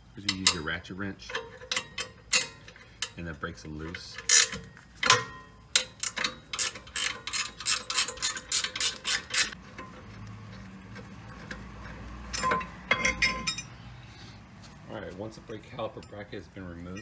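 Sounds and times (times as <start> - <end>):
metal clink: 0.2 - 3.2, 4.1 - 10.0, 12.3 - 13.8
ratchet wrench clicking: 0.2 - 3.2, 4.1 - 10.0.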